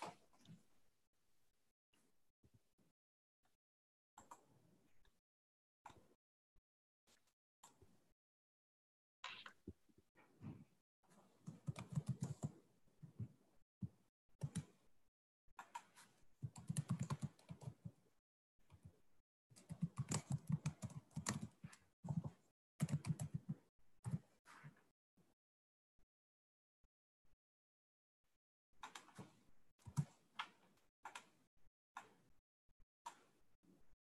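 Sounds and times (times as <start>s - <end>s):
typing on computer keyboard: 11.4s - 12.6s, 14.4s - 14.8s, 15.6s - 17.9s, 19.6s - 24.2s.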